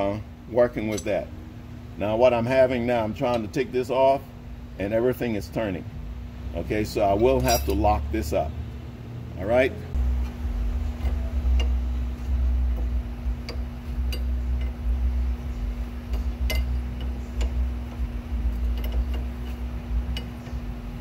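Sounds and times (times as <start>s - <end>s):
steady low hum: 0.0s - 21.0s
metal wrenches clinking: 0.8s - 1.2s, 7.1s - 8.0s, 16.0s - 20.6s.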